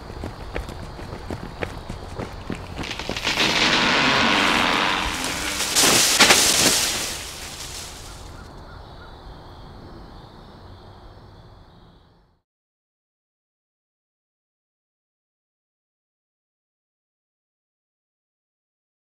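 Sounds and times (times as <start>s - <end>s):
footsteps running on dry leaves: 0.0s - 8.4s.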